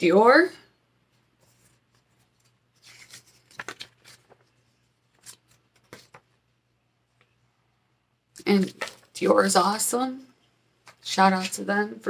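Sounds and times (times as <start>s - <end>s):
paper rustling and clicks: 2.2s - 6.3s, 8.7s - 9.2s.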